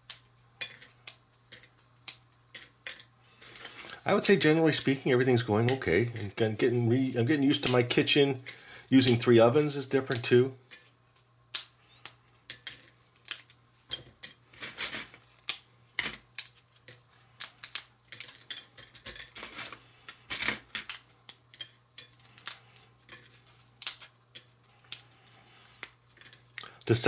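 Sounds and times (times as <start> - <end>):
tortilla chips snapping: 15.3 - 18.6, 22.2 - 22.9, 23.7 - 27.0.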